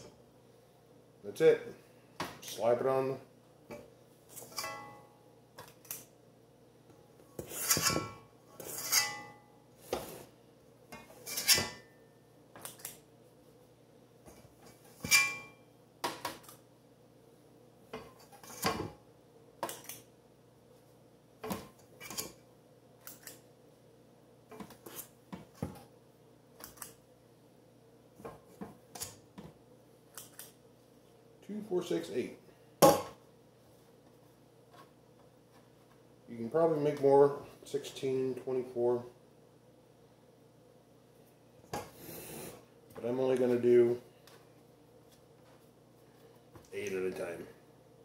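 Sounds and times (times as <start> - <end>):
metal scoop scraping steel bowl: 7.4 - 9.3, 11.2 - 11.8.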